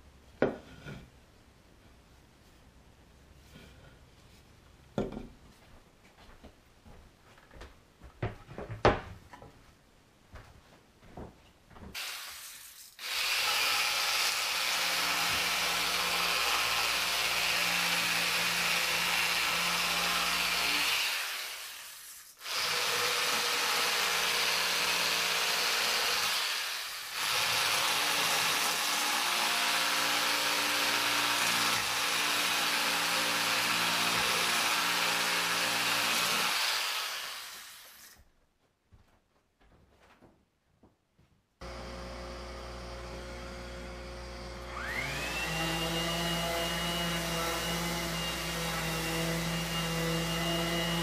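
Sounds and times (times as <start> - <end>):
reciprocating saw cutting wood: 12.0 - 38.2, 41.6 - 51.0.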